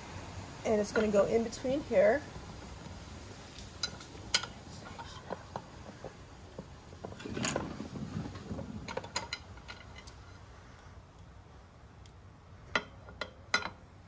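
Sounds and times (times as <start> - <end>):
scraping rustle: 2.7 - 11.0.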